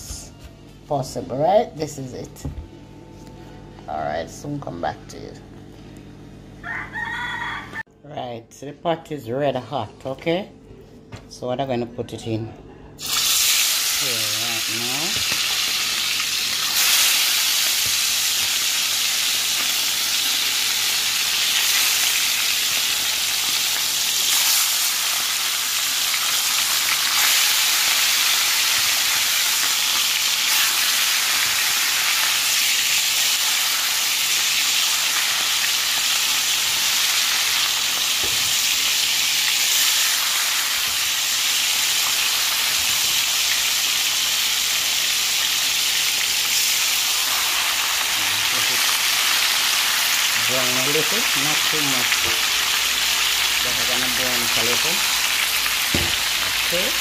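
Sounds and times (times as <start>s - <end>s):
chicken sizzling in hot oil: 13.0s - 57.0s.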